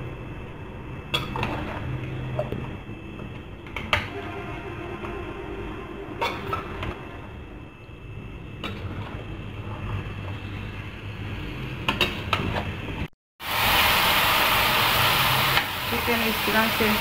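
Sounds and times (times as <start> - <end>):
chicken sizzling in oil: 13.4 - 17.0.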